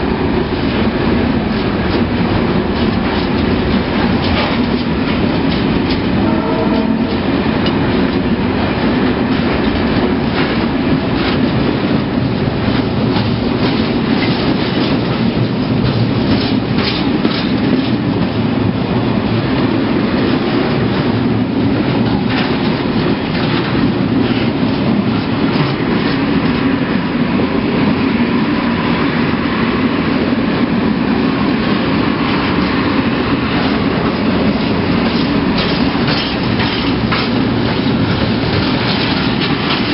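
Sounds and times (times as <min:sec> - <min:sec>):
steel wheels rumbling on rail: 0:00.0 - 0:39.9
wheels clattering over rail joints: 0:00.4 - 0:08.3, 0:09.2 - 0:19.4, 0:33.6 - 0:39.9.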